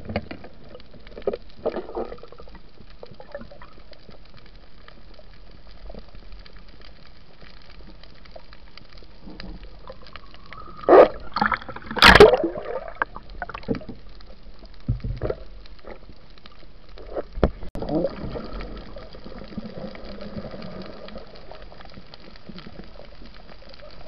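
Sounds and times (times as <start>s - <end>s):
air bubbles gurgling: 0.0s - 4.0s, 9.3s - 14.0s, 17.0s - 23.2s.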